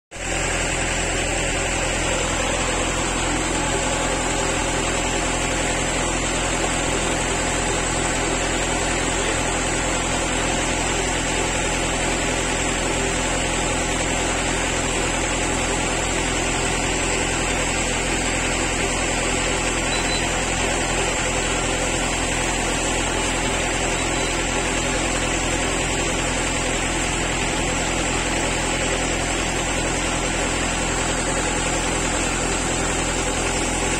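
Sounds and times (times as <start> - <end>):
engine droning steadily: 0.1 - 33.9.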